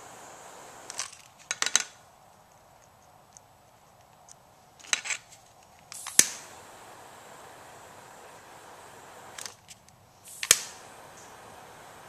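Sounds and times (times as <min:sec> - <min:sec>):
gas torch hissing: 0:00.0 - 0:01.0, 0:05.9 - 0:09.6, 0:10.2 - 0:12.0
igniter clicks: 0:05.9 - 0:09.6, 0:10.3 - 0:12.0.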